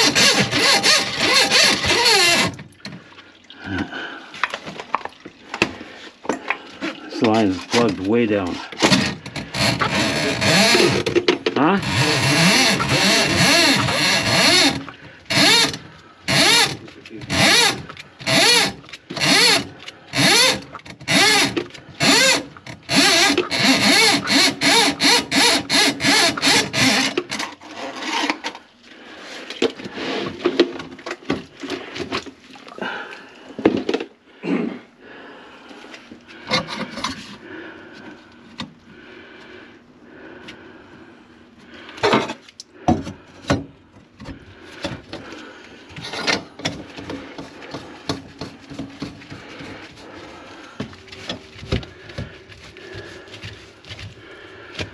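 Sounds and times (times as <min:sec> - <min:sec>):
drain snake whining: 0:00.0 - 0:02.6, 0:11.8 - 0:27.1
cable scraping and clicking: 0:08.8 - 0:28.7.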